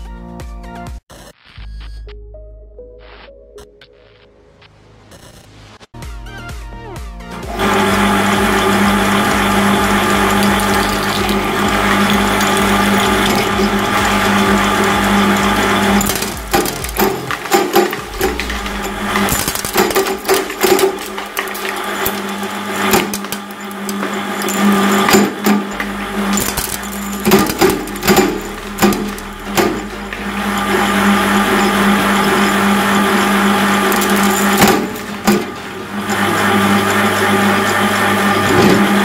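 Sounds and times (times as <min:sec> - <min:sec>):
shredder motor hum: 0:07.4 - 0:39.0
glass cracking in blades: 0:10.0 - 0:35.6.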